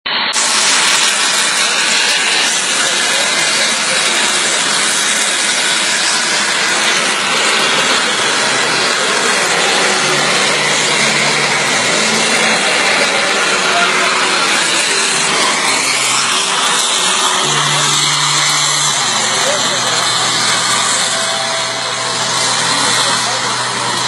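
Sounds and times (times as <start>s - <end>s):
model jet engine hissing: 0.1s - 24.0s.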